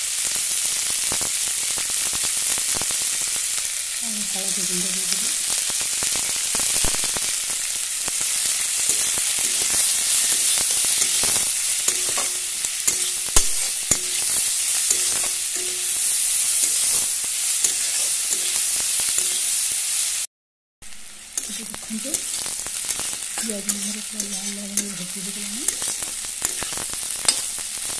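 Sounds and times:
onions sizzling in oil: 0.0s - 27.9s
spatula scraping pan: 8.2s - 19.5s, 21.4s - 27.6s.

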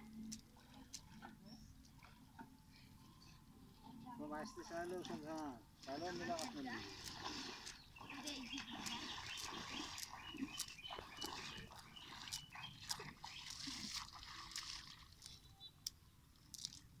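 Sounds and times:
water splashing and sloshing: 0.0s - 17.0s
sharp splashes: 5.8s - 15.4s.

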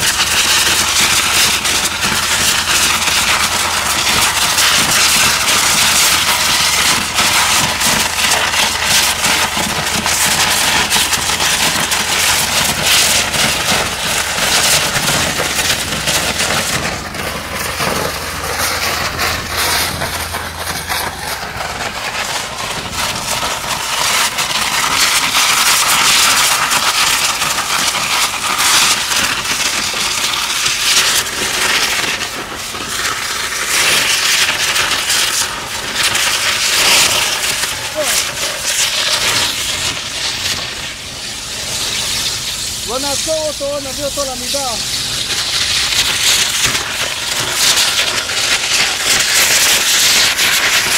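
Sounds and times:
water jet blasting concrete: 0.0s - 50.9s
low hum: 15.3s - 23.7s.

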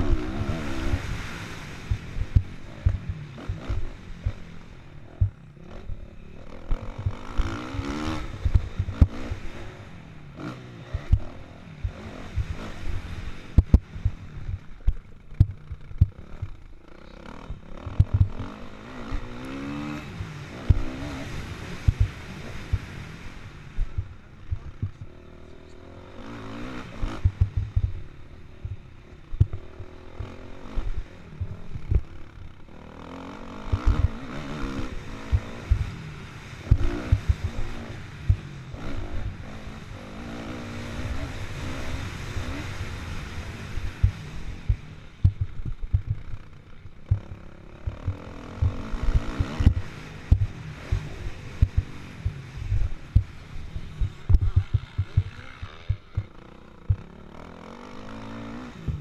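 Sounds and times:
motocross engine revving: 0.0s - 59.0s
short low thumps: 8.4s - 9.1s, 13.6s - 16.6s, 17.5s - 18.4s, 23.8s - 25.2s, 27.1s - 32.2s, 36.7s - 37.6s, 43.9s - 57.1s.

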